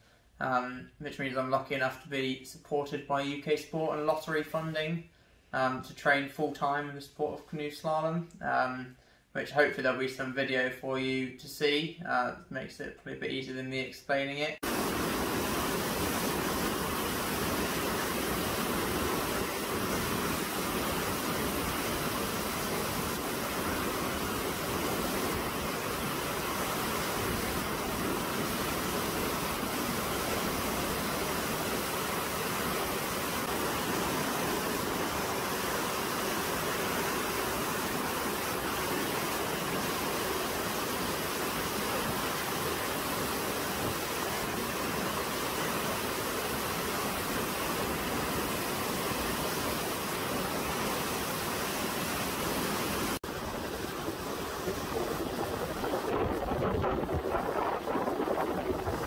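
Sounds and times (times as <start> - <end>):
whitewater rushing: 14.6 - 59.0.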